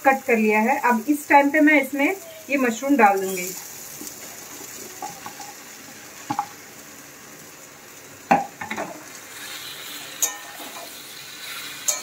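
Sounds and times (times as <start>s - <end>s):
low sizzle: 0.0s - 12.0s
mushrooms dropping into pan: 6.2s - 6.6s
metal spatula scraping pan: 9.3s - 12.0s.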